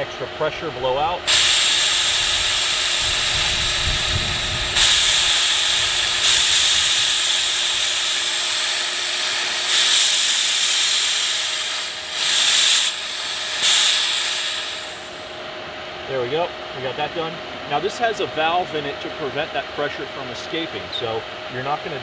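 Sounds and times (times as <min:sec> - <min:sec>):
high-pressure air hissing from valve: 0:01.3 - 0:15.4.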